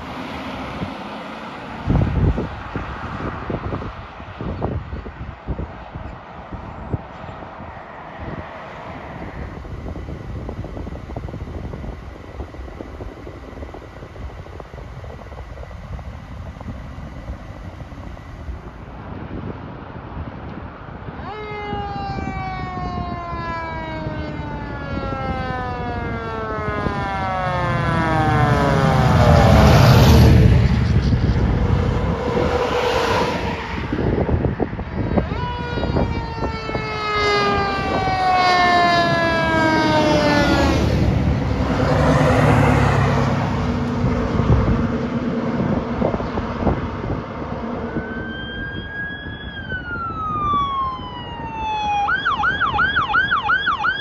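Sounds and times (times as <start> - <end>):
diesel engine rumble: 0.0 - 21.3, 22.2 - 54.0
rising and falling siren: 0.0 - 54.0
siren falling in pitch: 21.1 - 34.2, 35.0 - 45.2, 47.5 - 54.0.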